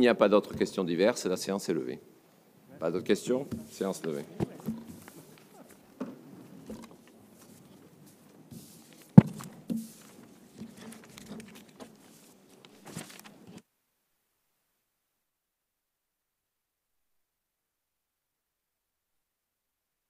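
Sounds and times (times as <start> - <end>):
knocks and shuffles: 3.2 - 13.6
footsteps: 3.4 - 13.3
sharp thump: 9.2 - 10.0.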